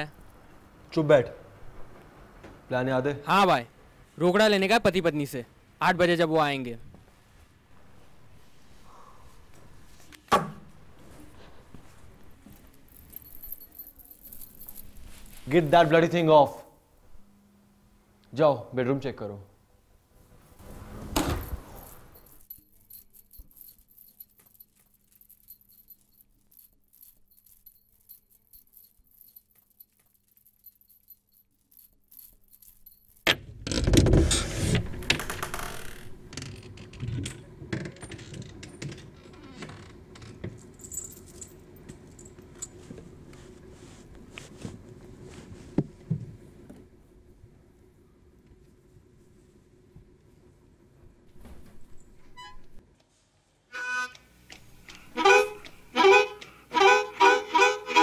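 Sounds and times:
room hum: 0:00.0 - 0:58.0
rummaging rustling and clattering: 0:11.0 - 0:16.1
knocks and rustles: 0:20.6 - 0:46.9.

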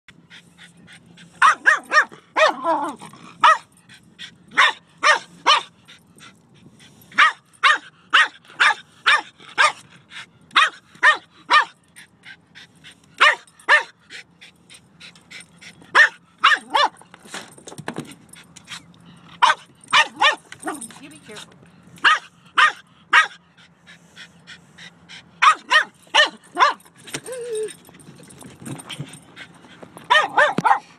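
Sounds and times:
dog barking: 0:01.4 - 0:03.7, 0:04.6 - 0:05.7, 0:07.2 - 0:09.8, 0:10.6 - 0:11.8, 0:13.2 - 0:14.0, 0:16.0 - 0:17.0, 0:19.4 - 0:20.9, 0:22.0 - 0:23.4, 0:25.4 - 0:26.8, 0:30.1 - 0:30.9.

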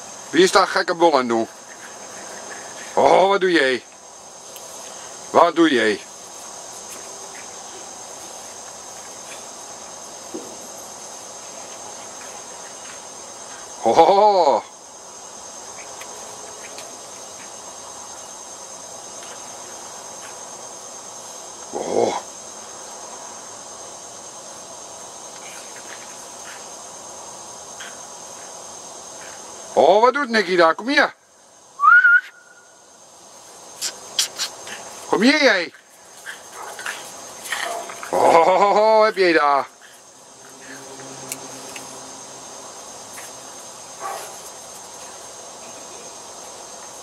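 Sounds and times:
recording hiss with high whine: 0:00.0 - 0:47.0.

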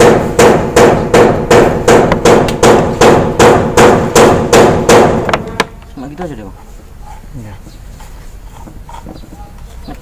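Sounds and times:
hammering blows ringing: 0:00.0 - 0:05.7.

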